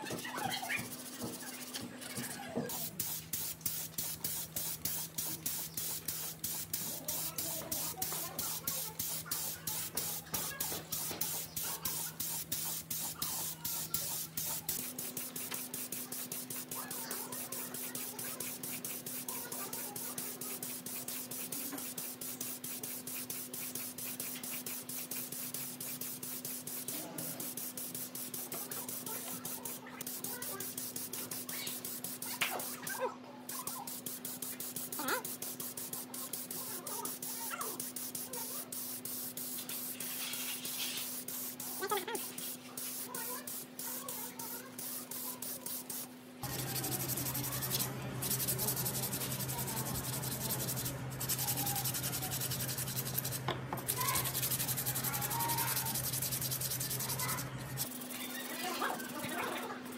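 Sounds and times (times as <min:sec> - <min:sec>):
spray paint hissing: 0:00.1 - 0:32.9, 0:33.5 - 0:59.9
hand sanding metal: 0:00.8 - 0:32.4, 0:33.8 - 0:59.9.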